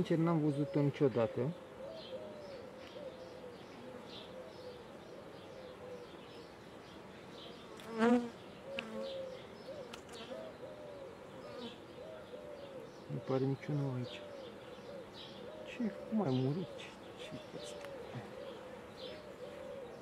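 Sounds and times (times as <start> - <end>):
bees buzzing: 7.4 - 10.6.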